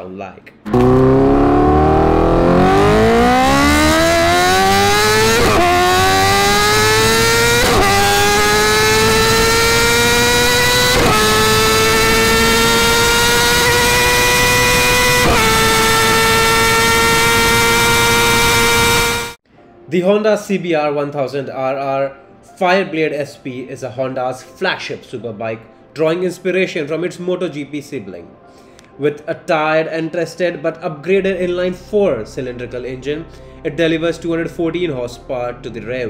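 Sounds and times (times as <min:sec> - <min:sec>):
motorcycle engine accelerating: 0:00.7 - 0:19.4.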